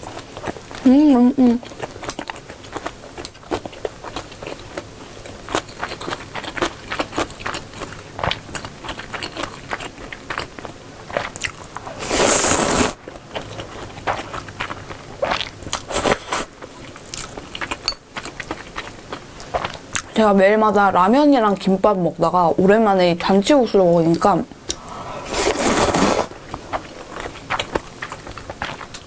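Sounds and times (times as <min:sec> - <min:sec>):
wet chewing: 0:00.0 - 0:20.2, 0:24.1 - 0:29.0
noodle slurp: 0:12.0 - 0:13.0, 0:24.7 - 0:26.8.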